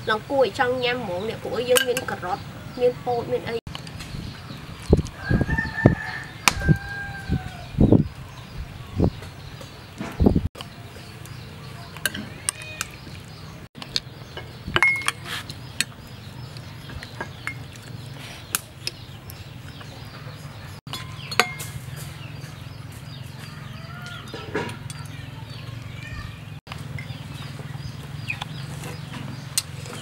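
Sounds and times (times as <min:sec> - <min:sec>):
spoon clinking on ceramic bowls: 0:14.4 - 0:15.2, 0:17.2 - 0:17.7, 0:20.9 - 0:21.9.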